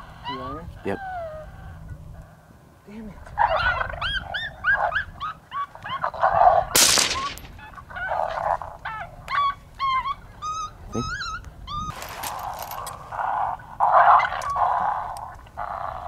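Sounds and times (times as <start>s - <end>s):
coyote yipping and whining: 0.0s - 2.3s, 3.3s - 16.0s.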